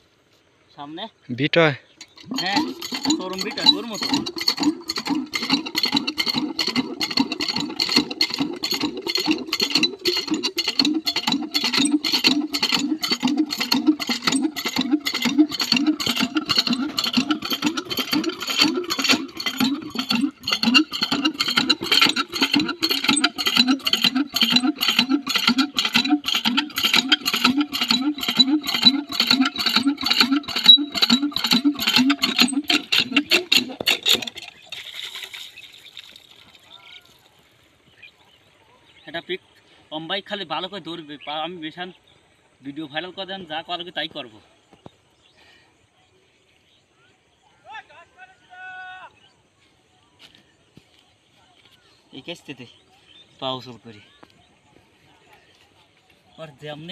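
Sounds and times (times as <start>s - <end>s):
water glugging from plastic can: 31.2s - 37.2s.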